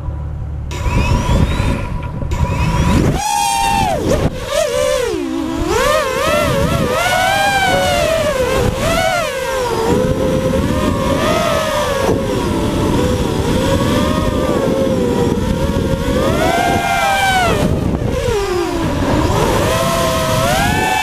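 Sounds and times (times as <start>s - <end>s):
drone propellers whining: 0.0s - 21.0s
wind rushing over microphone: 0.7s - 21.0s.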